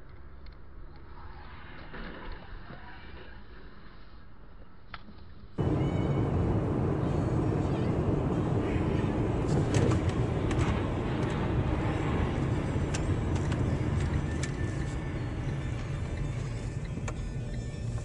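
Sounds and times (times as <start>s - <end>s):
road vehicle rumble: 5.6s - 18.0s.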